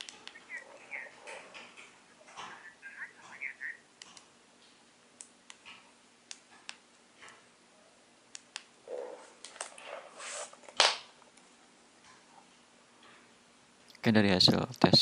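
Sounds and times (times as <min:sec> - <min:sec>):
rustling: 0:08.9 - 0:10.8.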